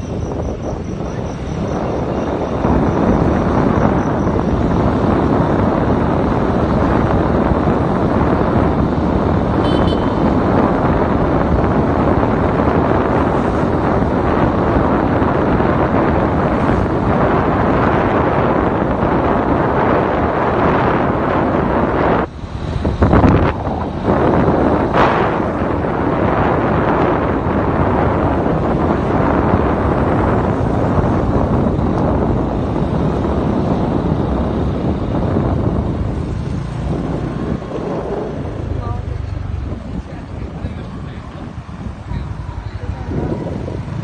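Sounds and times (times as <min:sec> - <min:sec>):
road noise: 0:00.0 - 0:44.0
vehicle engine: 0:00.0 - 0:44.0
wind rushing on microphone: 0:00.0 - 0:44.0.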